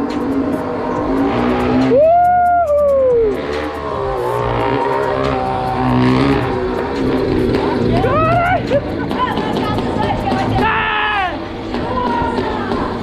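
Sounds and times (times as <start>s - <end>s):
small engine revving: 0.2s - 2.0s, 3.0s - 10.6s.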